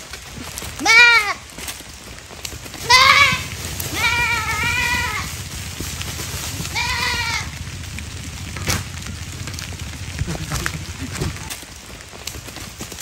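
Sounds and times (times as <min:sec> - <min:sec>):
young goat bleating: 0:00.8 - 0:01.4, 0:02.8 - 0:05.4, 0:06.6 - 0:07.7.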